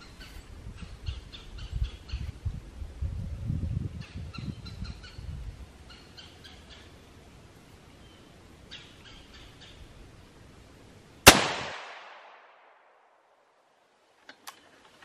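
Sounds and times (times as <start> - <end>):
bird chirping: 4.0 - 9.8.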